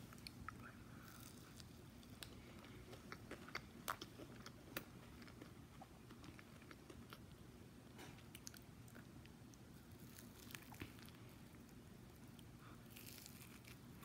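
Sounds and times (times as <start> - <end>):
person chewing crunchy snack: 12.3 - 14.0.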